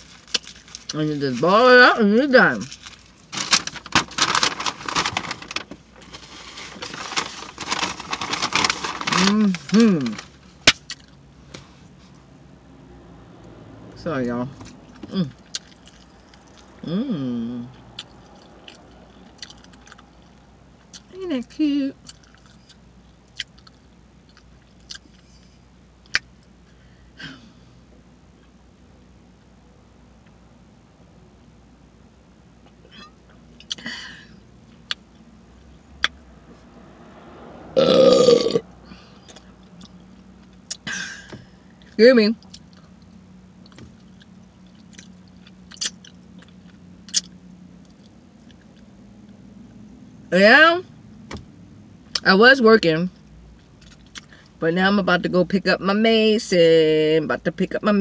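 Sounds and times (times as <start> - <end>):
chewing mouth sounds: 15.3 - 16.8.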